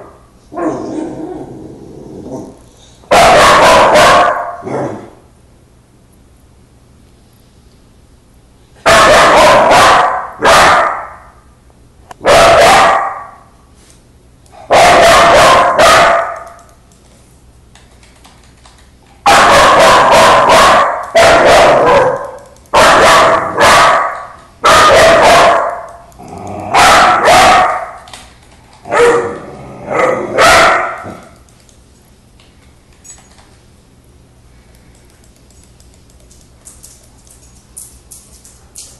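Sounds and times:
young dog barking: 0:03.1 - 0:04.8, 0:08.9 - 0:11.2, 0:12.2 - 0:13.4, 0:14.7 - 0:16.4, 0:19.3 - 0:26.0, 0:26.7 - 0:28.0, 0:28.9 - 0:31.2.

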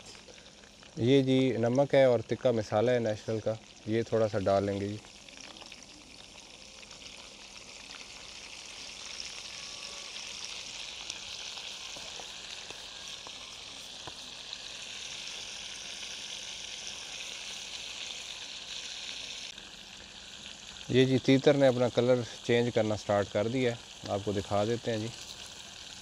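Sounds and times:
oil sizzling in a frying pan: 0:00.0 - 0:26.0
small oil pops: 0:11.9 - 0:14.4.

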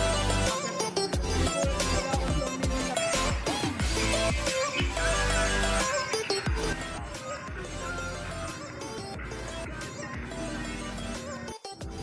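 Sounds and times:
music with deep kick drums: 0:01.1 - 0:05.8, 0:06.5 - 0:08.3.

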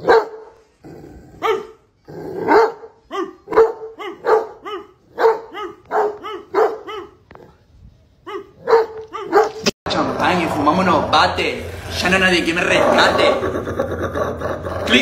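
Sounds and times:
dog barking: 0:00.0 - 0:00.6, 0:01.4 - 0:01.8, 0:02.4 - 0:07.5, 0:08.2 - 0:09.7.

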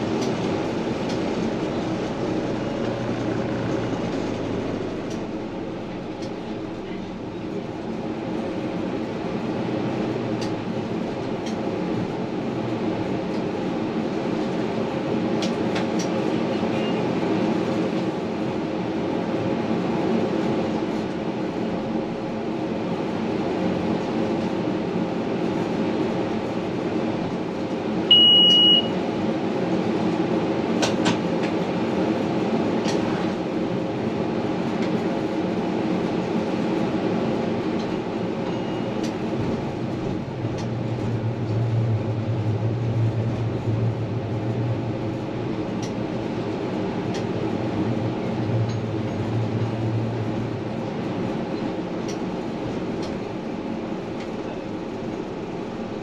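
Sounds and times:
deeper hum: 0:00.0 - 0:07.8, 0:39.4 - 0:51.0
tram hum and rolling noise: 0:00.0 - 0:56.0
short high beep: 0:28.1 - 0:29.0.

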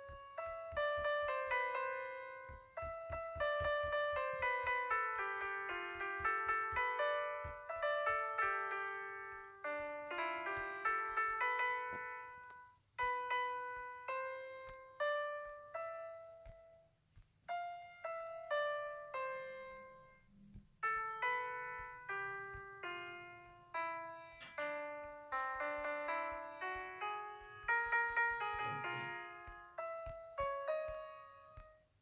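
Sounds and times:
gentle piano music: 0:00.0 - 0:32.0.

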